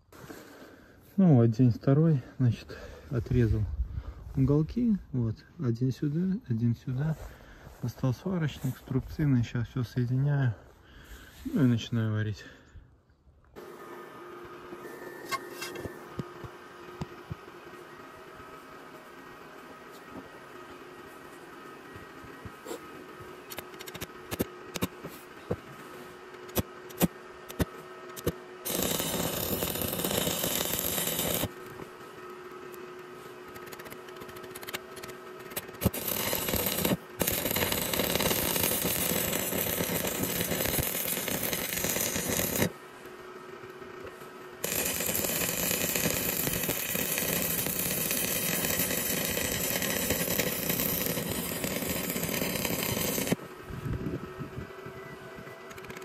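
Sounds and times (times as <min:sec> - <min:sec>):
sharp clicks: 0:23.5 - 0:24.9, 0:33.5 - 0:42.7
welding arc crackling: 0:23.5 - 0:25.0, 0:26.3 - 0:31.8, 0:33.5 - 0:42.8, 0:44.6 - 0:53.4.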